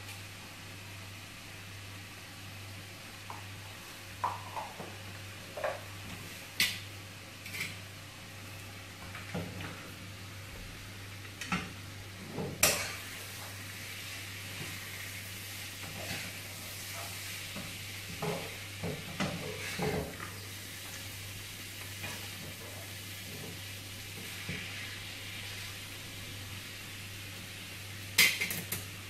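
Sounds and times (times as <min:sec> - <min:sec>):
vegetables sizzling in a pan: 0:00.0 - 0:29.0
metal spatula scraping a pan: 0:15.8 - 0:17.2.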